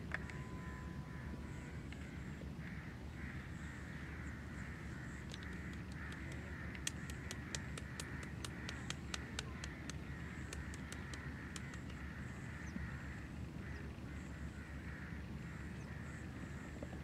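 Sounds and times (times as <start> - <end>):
low outdoor rumble: 0.0 - 17.0
faint bird calls: 0.1 - 17.0
sharp light clicks: 5.3 - 12.0.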